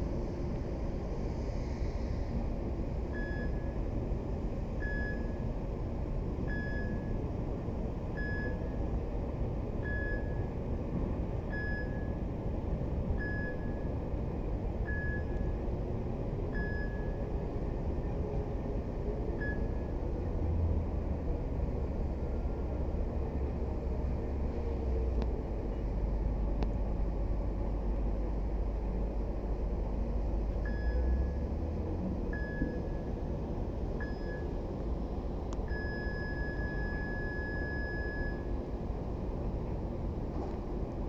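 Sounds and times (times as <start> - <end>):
steady low rumble: 0.0 - 41.0
electronic warning beeps: 3.2 - 3.7, 13.2 - 13.8, 34.0 - 34.6, 35.7 - 38.5.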